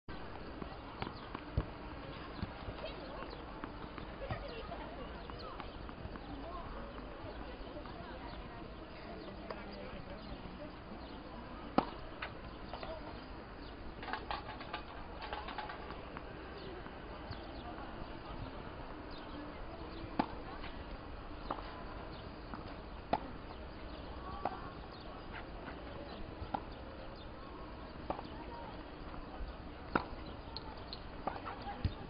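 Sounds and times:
outdoor background noise: 0.1 - 32.0
tennis racquets hitting ball: 11.0 - 12.9, 19.8 - 20.8, 25.7 - 26.8, 27.6 - 32.0.

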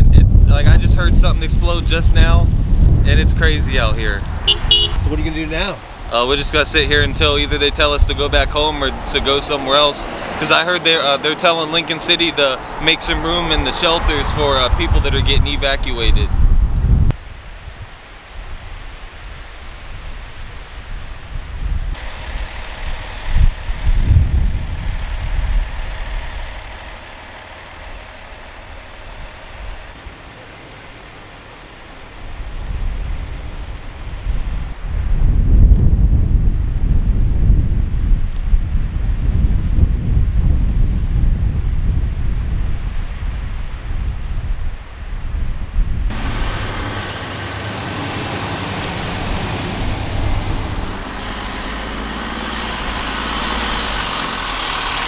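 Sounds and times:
wind buffeting microphone: 0.0 - 10.4, 11.8 - 30.1, 32.0 - 55.0
road traffic rumble and hiss: 0.0 - 55.0
vehicle engine running: 22.0 - 34.6, 46.1 - 55.0.

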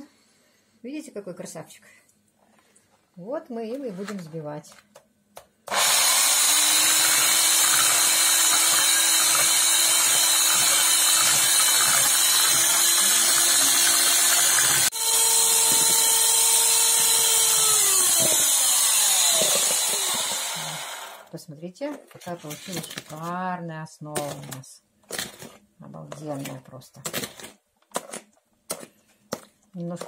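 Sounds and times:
electric hand mixer running: 5.7 - 21.3.

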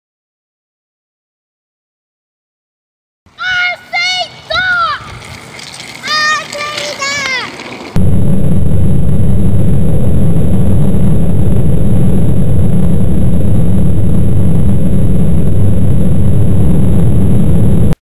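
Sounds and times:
propeller noise: 3.8 - 18.0
wind buffeting microphone: 4.3 - 17.6.

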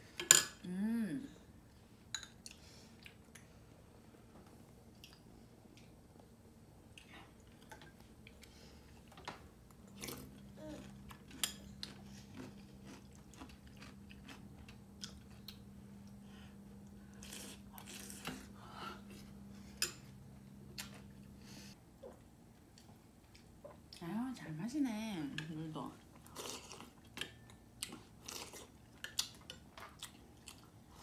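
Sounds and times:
person chewing: 2.4 - 3.6, 4.9 - 6.0, 9.8 - 16.2, 16.8 - 18.5, 22.0 - 24.0, 26.2 - 31.0.

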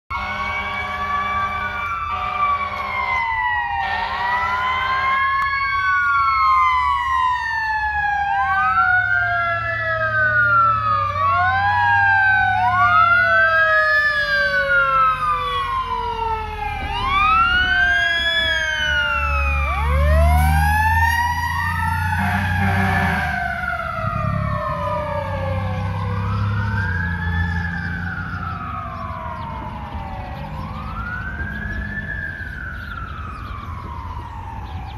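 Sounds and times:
horn blasts: 0.1 - 5.4, 22.1 - 23.6
siren wailing up and down: 0.1 - 34.9
truck engine rumbling: 0.1 - 34.9
siren winding up and falling: 1.3 - 34.9.

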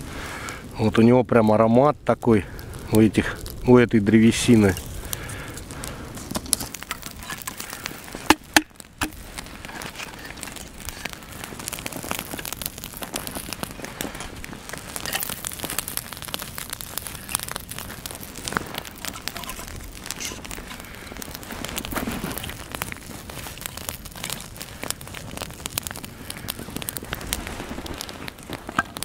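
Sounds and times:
campfire crackling: 0.0 - 29.0
sharp fire pops: 0.0 - 29.0.

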